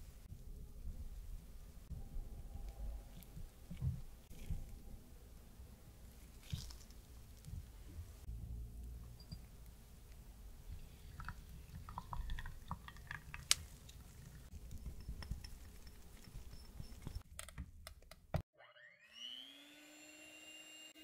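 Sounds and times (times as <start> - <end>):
small plops and drips: 10.7 - 16.3
liquid pouring into a jug: 10.8 - 14.5
electric hand mixer whine: 18.6 - 21.0.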